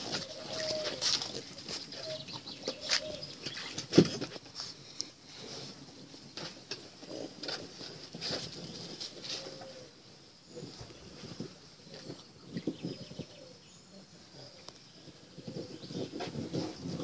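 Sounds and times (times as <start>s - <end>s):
puppies splashing in water: 0.0s - 4.4s.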